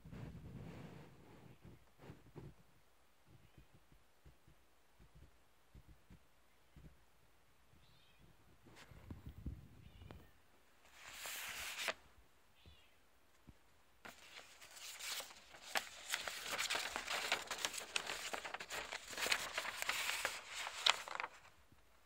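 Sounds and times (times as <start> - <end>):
paper rustling and crinkling: 10.8 - 12.0, 14.0 - 21.6.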